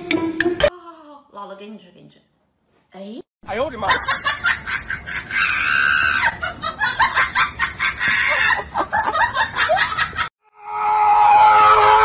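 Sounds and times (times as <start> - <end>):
woman laughing: 4.0 - 10.3.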